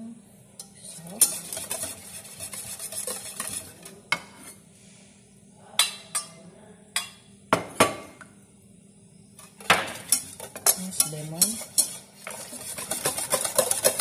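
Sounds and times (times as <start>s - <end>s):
utensils clinking against bowl: 0.6s - 4.6s, 9.4s - 14.0s.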